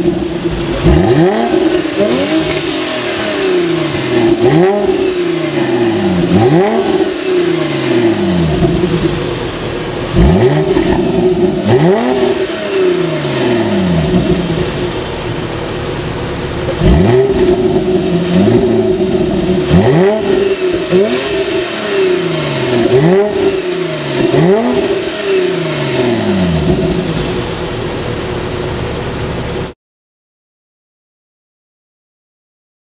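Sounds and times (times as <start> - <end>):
car engine revving: 0.0 - 29.7.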